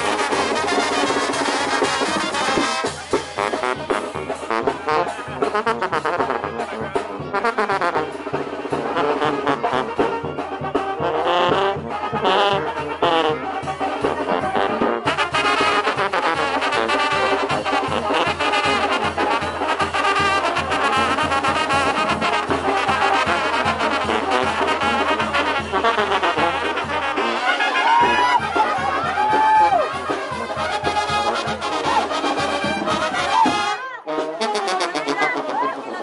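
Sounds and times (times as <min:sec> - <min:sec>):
brass band playing dance music: 0:00.0 - 0:36.0.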